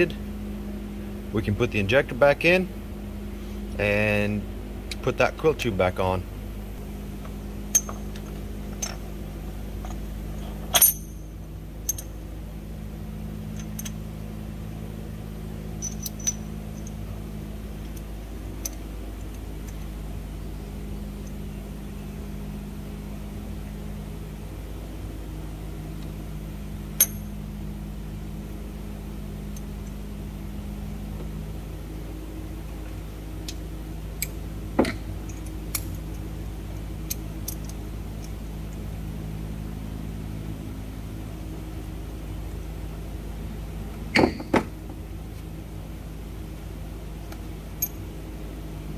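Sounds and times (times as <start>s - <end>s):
steady low hum: 0.0s - 48.9s
metal parts clicking and clinking: 7.7s - 9.1s, 9.8s - 12.1s, 13.6s - 14.0s, 15.8s - 17.0s, 37.1s - 37.8s.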